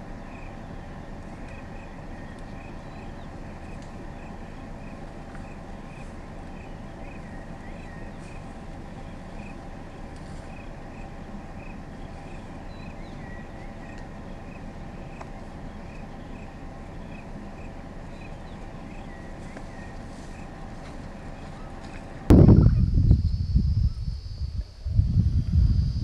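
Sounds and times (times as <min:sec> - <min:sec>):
low rumble: 0:22.2 - 0:26.0.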